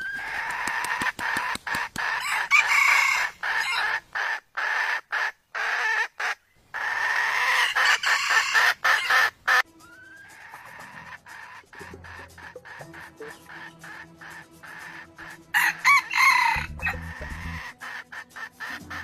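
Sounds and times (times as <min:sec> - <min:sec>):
rooster crowing: 0:02.2 - 0:04.0, 0:07.2 - 0:09.2, 0:15.5 - 0:17.7.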